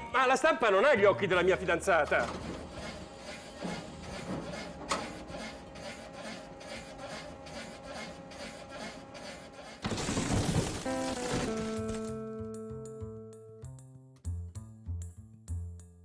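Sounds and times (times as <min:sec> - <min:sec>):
printing press clattering: 0:01.7 - 0:07.7.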